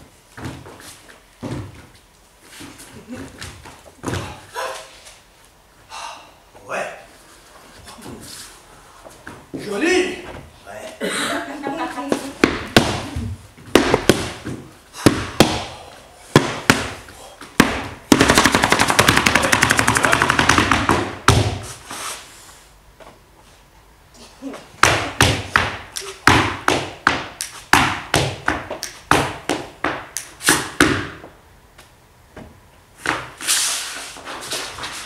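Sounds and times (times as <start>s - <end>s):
dance steps on wooden stage: 2.6s - 4.5s, 12.1s - 21.7s, 24.8s - 31.4s.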